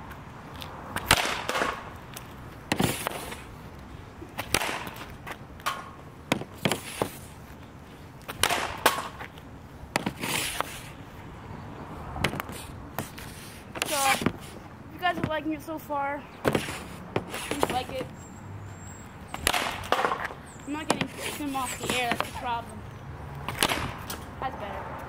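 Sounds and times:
hockey stick slapping pucks: 1.0s - 3.5s, 4.4s - 7.3s, 8.2s - 9.3s, 9.9s - 10.9s, 12.2s - 14.5s, 16.4s - 18.1s, 19.4s - 22.6s, 23.5s - 24.2s.

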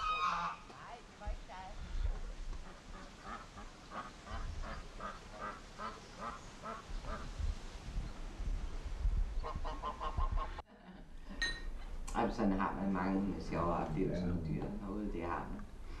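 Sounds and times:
ducks quacking: 0.0s - 7.3s, 9.4s - 10.6s.

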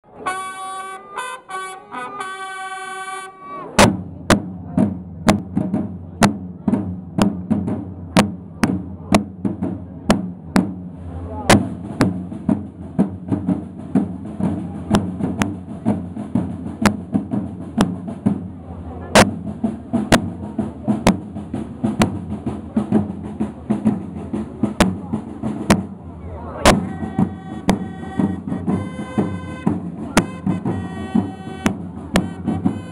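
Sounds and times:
horn fanfare: 0.1s - 3.7s, 26.6s - 32.9s
side drums playing march beat: 0.1s - 32.9s.

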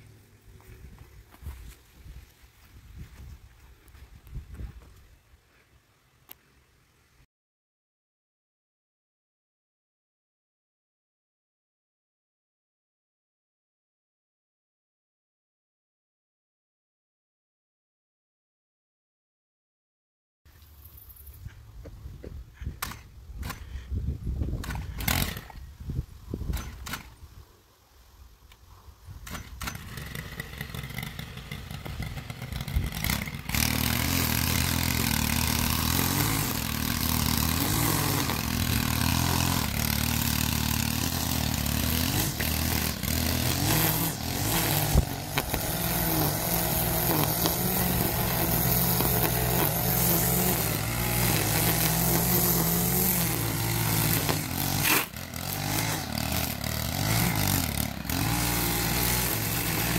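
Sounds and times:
string trimmer engine revving: 22.8s - 23.9s, 24.5s - 25.7s, 26.5s - 27.2s, 29.2s - 59.9s.

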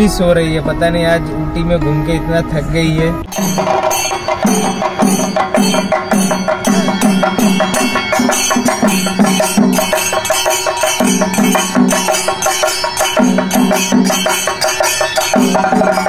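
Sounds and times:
drum ensemble playing fast rhythm: 3.2s - 16.0s.

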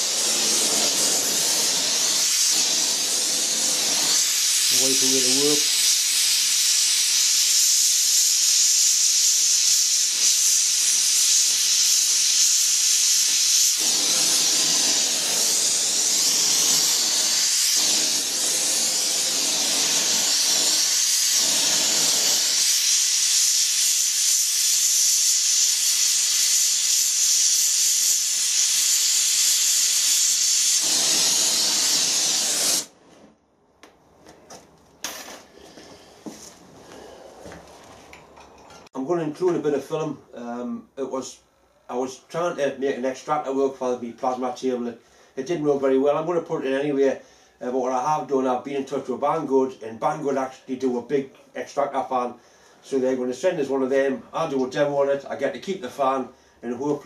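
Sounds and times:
torch flame hissing: 0.0s - 33.0s.

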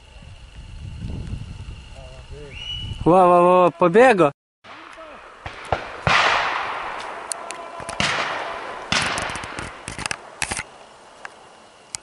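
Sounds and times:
shotgun shots echoing: 4.7s - 10.6s.

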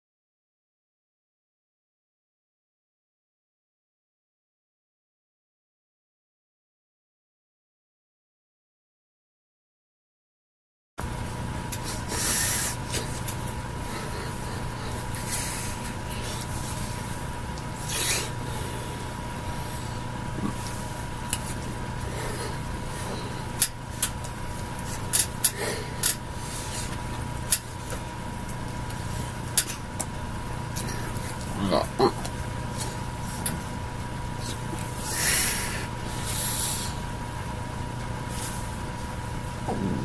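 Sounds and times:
electrical hum and hiss: 11.0s - 40.0s.

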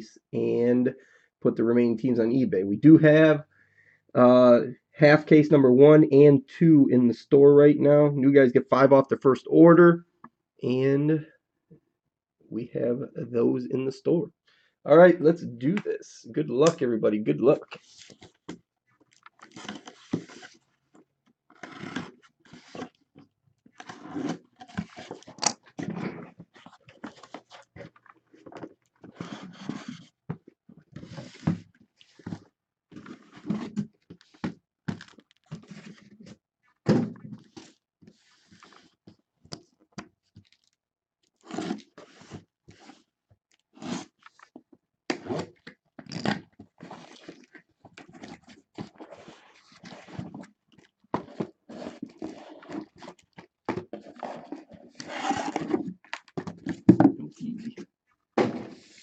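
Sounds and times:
cardboard scraping and crinkling: 19.4s - 20.7s, 21.5s - 23.0s, 23.8s - 30.2s, 30.9s - 36.3s, 41.4s - 43.1s, 46.6s - 50.6s, 51.2s - 57.8s, 58.4s - 59.0s.

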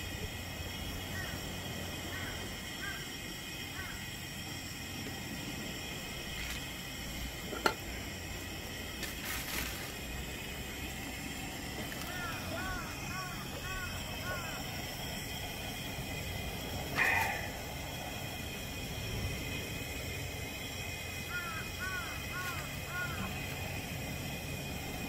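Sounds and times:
outdoor background: 0.0s - 25.0s
plastic bag handling noise: 9.0s - 10.0s.

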